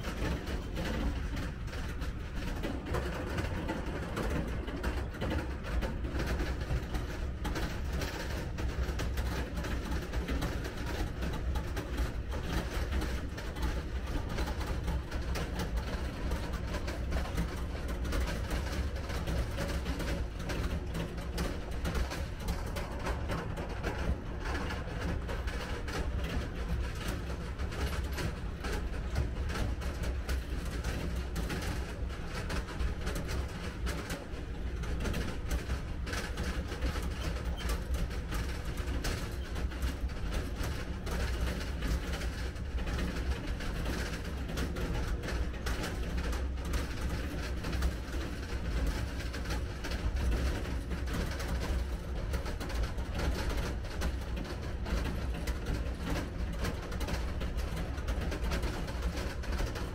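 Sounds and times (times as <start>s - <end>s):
trailer rattling and clattering: 0.0s - 59.9s.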